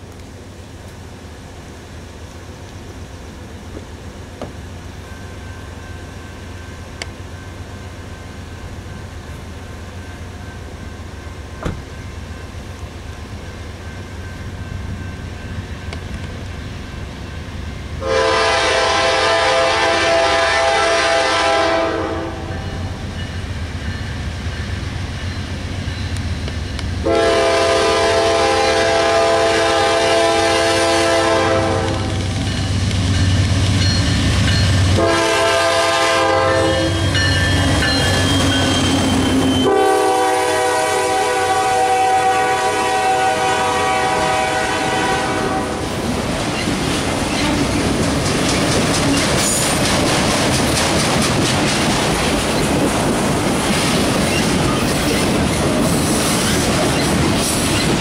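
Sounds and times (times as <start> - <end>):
diesel locomotive engine rumbling: 0.0 - 58.0
clickety-clack of train wheels: 3.6 - 6.0, 11.4 - 17.7, 21.3 - 29.1, 29.7 - 40.9, 42.6 - 58.0
locomotive air horn: 18.0 - 22.9, 27.0 - 32.2, 34.9 - 37.3, 38.1 - 45.8
faint wheel squeal: 36.9 - 39.7.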